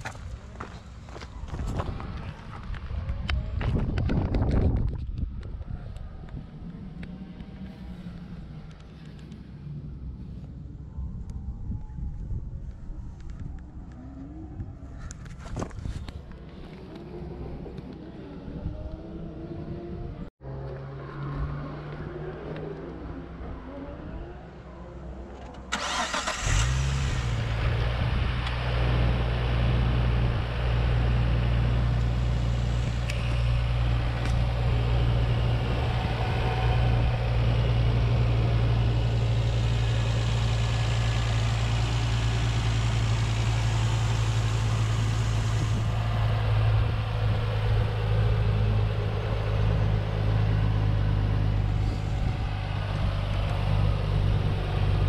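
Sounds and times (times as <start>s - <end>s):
car engine starting and idling: 25.1s - 55.0s.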